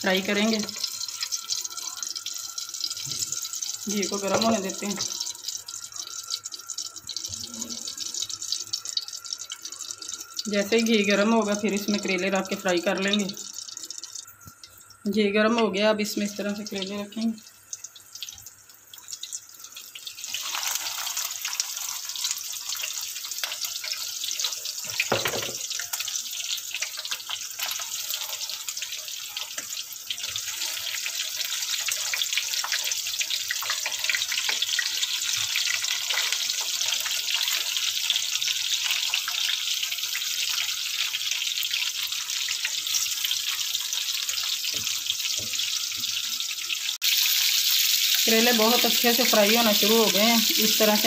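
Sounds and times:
food sizzling in hot fat: 0.0s - 51.0s
knock: 25.1s - 25.6s.

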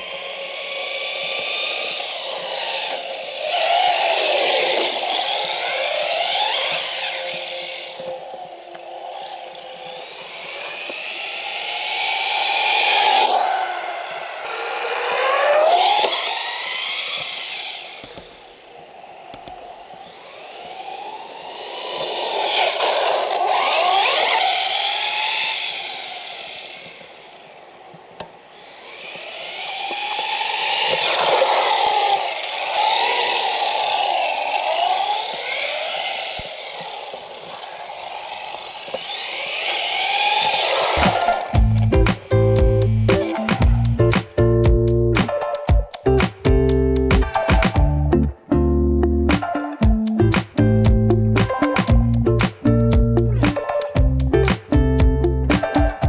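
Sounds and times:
toy truck electric motor whining: 0.0s - 41.7s
sharp click: 18.0s - 18.4s, 19.3s - 19.7s, 51.3s - 52.8s, 53.4s - 54.8s.

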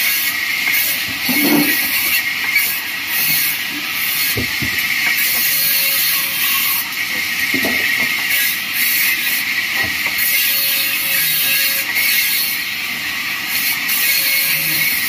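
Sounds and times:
dull knocks of wooden slabs: 4.3s - 4.8s, 7.5s - 8.1s.

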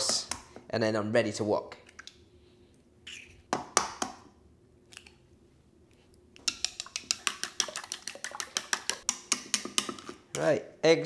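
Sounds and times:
whisking eggs in a bowl: 6.4s - 10.4s
eggs cracking: 6.4s - 10.6s.

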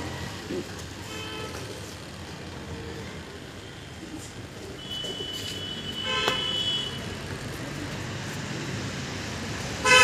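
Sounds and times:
road traffic hum: 0.0s - 10.0s
vehicle horn: 4.8s - 7.0s.

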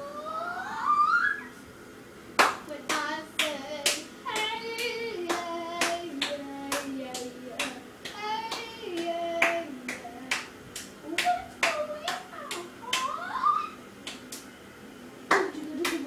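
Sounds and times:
boy singing: 2.7s - 10.3s, 11.1s - 13.8s.

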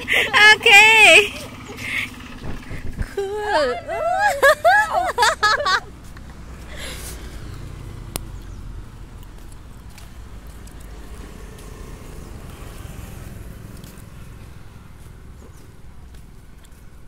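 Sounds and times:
scooters and motorcycles passing: 0.0s - 17.0s
wind rumble on microphone: 2.3s - 3.4s.

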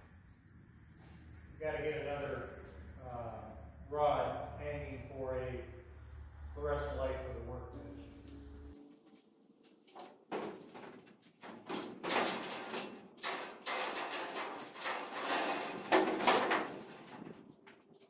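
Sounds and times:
metal ladder clanking and scraping: 9.8s - 18.0s.

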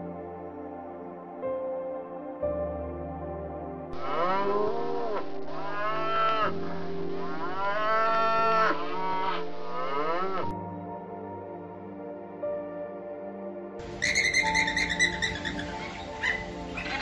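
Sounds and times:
soft background music: 0.0s - 17.0s
cows mooing: 4.0s - 10.5s.

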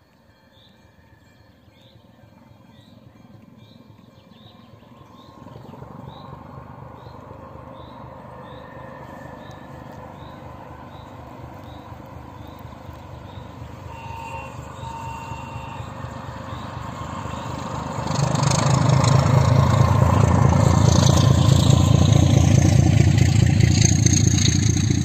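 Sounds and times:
diesel locomotive engine rumble: 2.0s - 25.0s
bird chirping: 7.0s - 17.9s.

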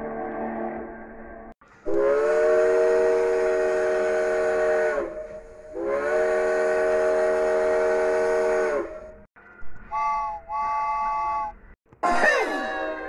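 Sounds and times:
steam locomotive chime whistle: 1.9s - 13.0s.

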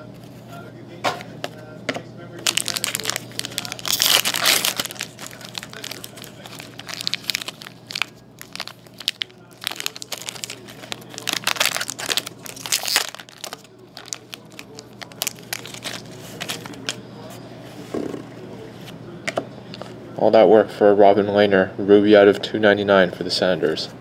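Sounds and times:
foil wrapper tearing and crinkling: 2.4s - 17.0s.

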